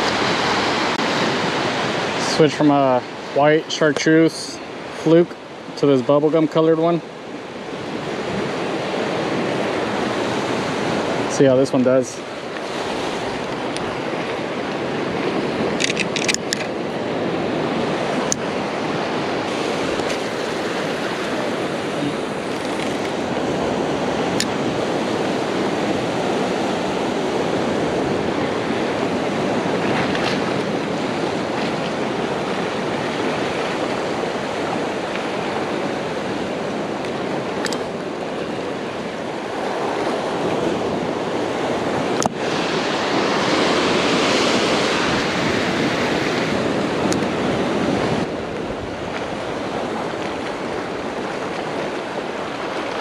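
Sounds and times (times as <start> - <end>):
ocean surf breaking: 0.0 - 53.0
sharp click: 15.8 - 16.7.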